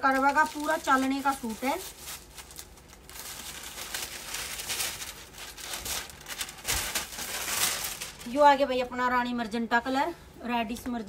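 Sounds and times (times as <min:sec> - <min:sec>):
fabric rustling and crinkling: 0:00.0 - 0:08.7.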